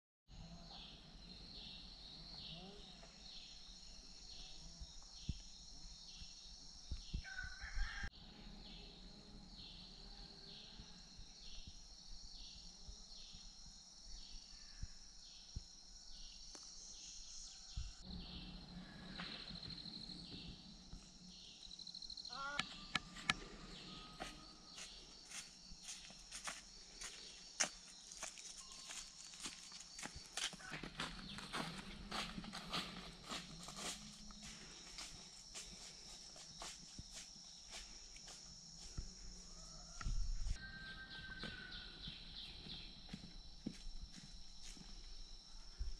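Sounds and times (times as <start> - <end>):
insects chirping: 0.3 - 45.9
rooster crowing: 7.2 - 8.2, 39.4 - 42.2.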